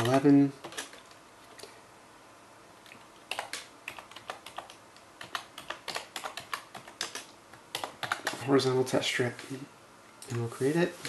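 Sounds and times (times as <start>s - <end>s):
computer keyboard typing: 0.0s - 1.2s, 3.3s - 8.4s.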